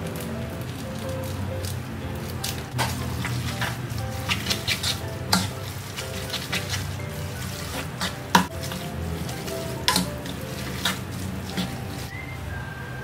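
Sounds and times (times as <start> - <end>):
soft music: 0.0 - 13.0
spatula scraping noodles in wok: 2.8 - 12.1
spatula knocking against pan: 7.7 - 8.8, 9.8 - 11.8.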